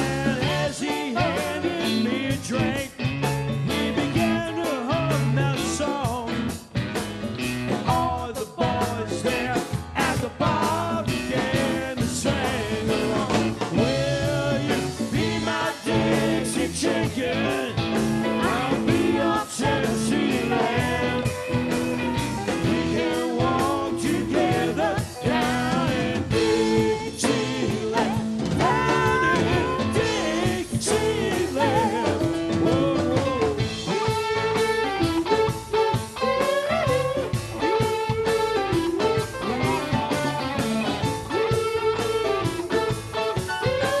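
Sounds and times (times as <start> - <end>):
person singing: 0.0 - 3.0, 3.7 - 6.4, 7.7 - 35.0
rock band playing: 0.0 - 44.0.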